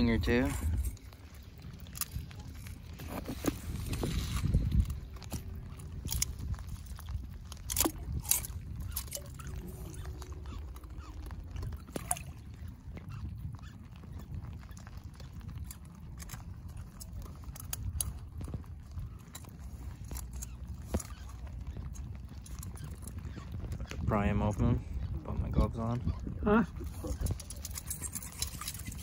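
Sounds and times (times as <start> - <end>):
wind rumble on microphone: 0.0 - 29.0
light water splashing: 3.6 - 18.1.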